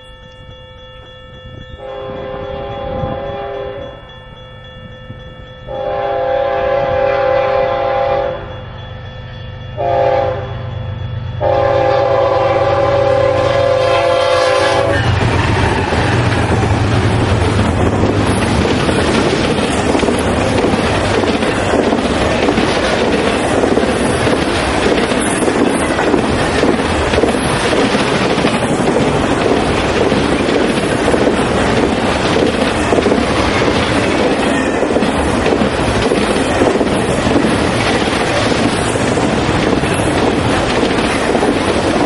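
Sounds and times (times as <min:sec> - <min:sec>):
train rumbling past: 0:00.0 - 0:42.0
locomotive air horn: 0:01.8 - 0:04.0, 0:05.7 - 0:08.5, 0:09.8 - 0:10.7, 0:11.4 - 0:15.2.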